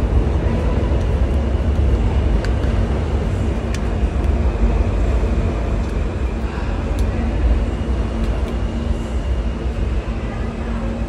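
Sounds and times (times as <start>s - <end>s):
subway station rumble: 0.0s - 11.0s.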